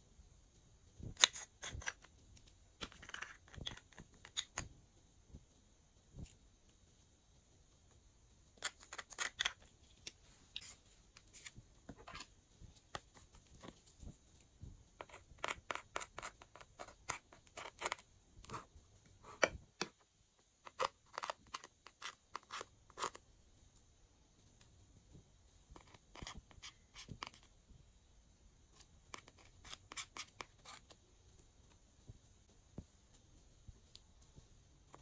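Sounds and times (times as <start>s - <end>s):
metal spatula scratching eyeshadow: 1.2s - 4.7s, 8.6s - 13.7s, 15.0s - 19.5s, 20.6s - 23.2s, 25.8s - 27.5s, 29.1s - 31.0s.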